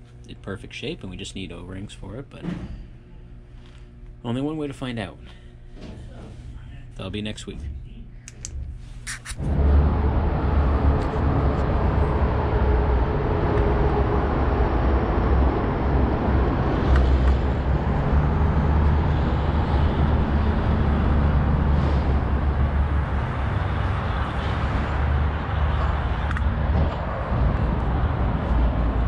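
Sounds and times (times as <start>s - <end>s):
loud low rumble: 9.4s - 29.0s.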